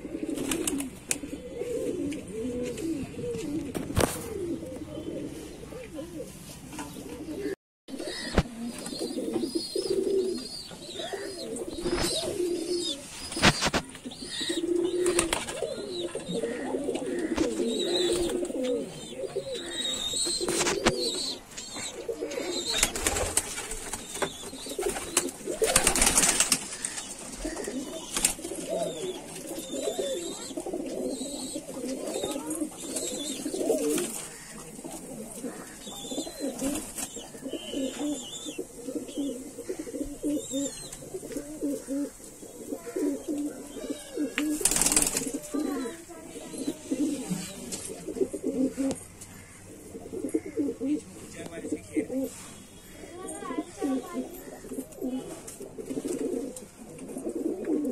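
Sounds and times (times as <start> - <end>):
pigeons cooing: 0.0 - 57.9.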